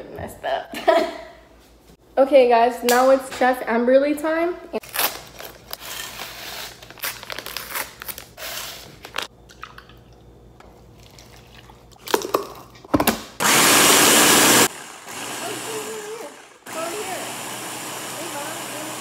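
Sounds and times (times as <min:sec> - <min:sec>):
blender motor running: 0:13.4 - 0:19.0.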